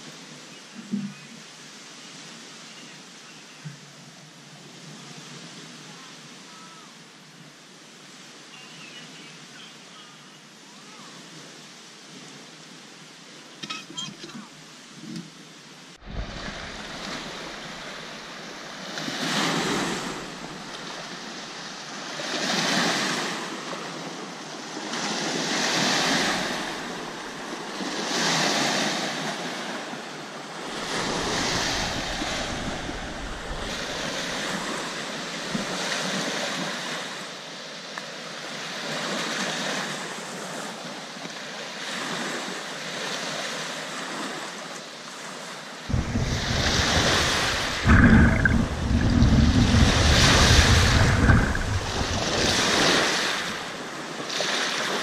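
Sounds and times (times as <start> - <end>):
waves washing on a sandy shore: 0.0 - 55.0
wind buffeting microphone: 16.0 - 21.1, 30.6 - 35.7, 45.9 - 54.0.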